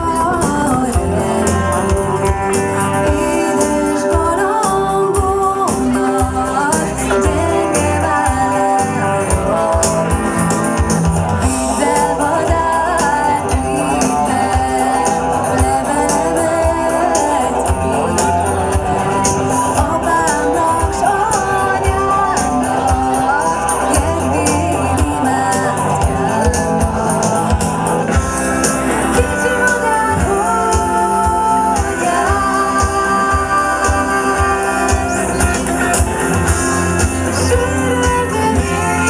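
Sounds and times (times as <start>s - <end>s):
women singing: 0.0s - 10.6s, 11.4s - 39.0s
electric bass: 0.0s - 39.0s
electric guitar: 0.0s - 39.0s
keyboard: 0.0s - 39.0s
steady drum beat: 0.0s - 39.0s.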